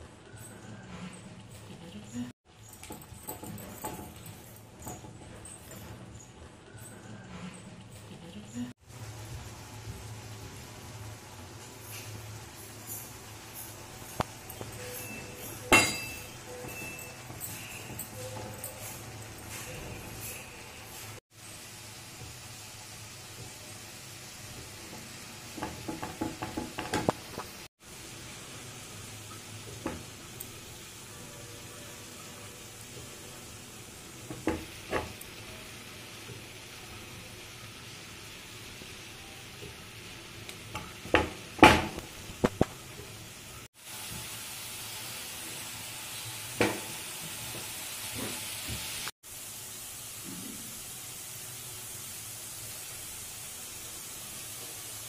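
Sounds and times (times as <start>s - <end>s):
food sizzling in a pan: 8.7s - 55.0s
steady hiss: 8.8s - 55.0s
metal masher knocking pan: 25.6s - 27.4s.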